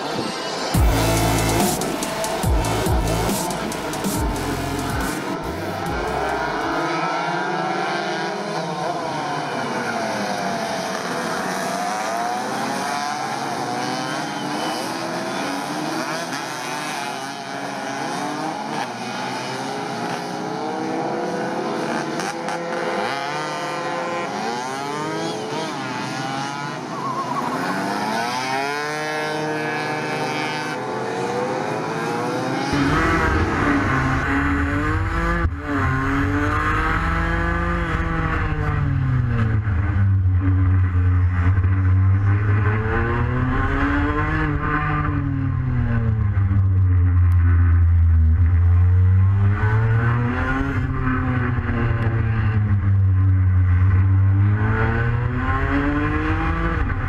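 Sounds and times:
racing scooter engines revving: 0:00.0 - 0:46.7
scooter engine low rumble: 0:32.7 - 0:49.4.

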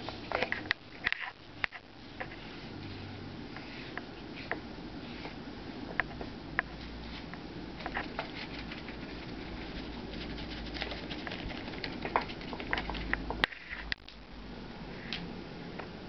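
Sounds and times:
low steady hum: 0:00.0 - 0:16.0
paintbrush tapping and scraping: 0:07.8 - 0:13.5.

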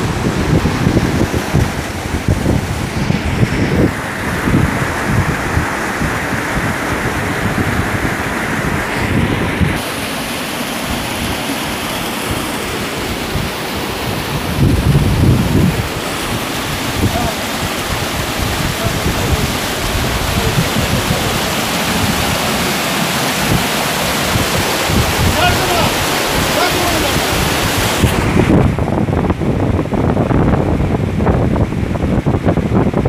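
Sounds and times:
waterfall rushing over rock: 0:00.0 - 0:33.0
wind buffeting microphone: 0:00.0 - 0:33.0.

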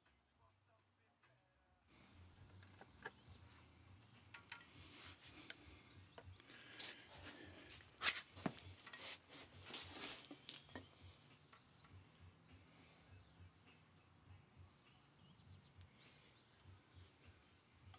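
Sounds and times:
ruler rubbing on steel tubing: 0:06.8 - 0:11.4.

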